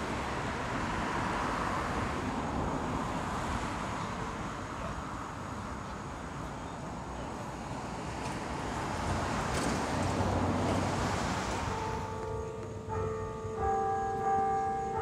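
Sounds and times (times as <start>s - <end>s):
traffic-like hiss: 0.0s - 12.9s
held musical tones: 11.7s - 15.0s.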